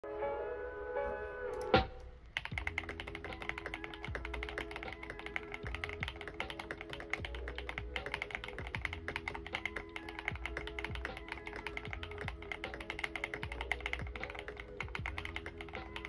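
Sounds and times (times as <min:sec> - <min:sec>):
fast typing on mechanical keyboard: 0:02.3 - 0:16.0.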